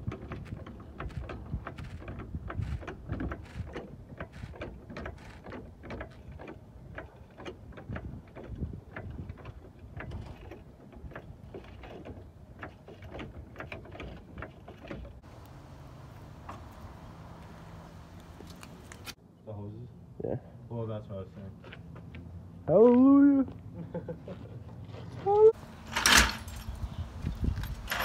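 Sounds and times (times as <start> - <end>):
metallic clicks and knocks: 0.0 - 16.8.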